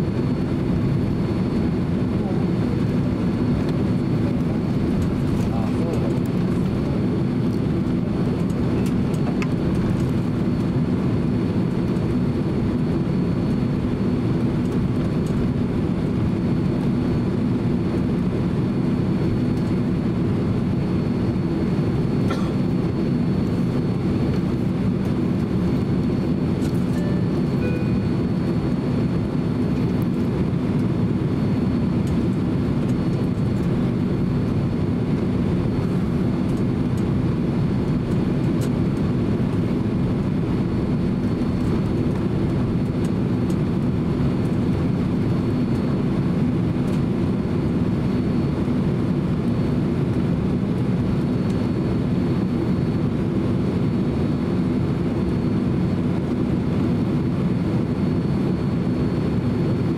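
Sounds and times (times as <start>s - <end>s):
jet engines low rumble: 0.0s - 59.9s
faint high whine: 26.6s - 28.4s.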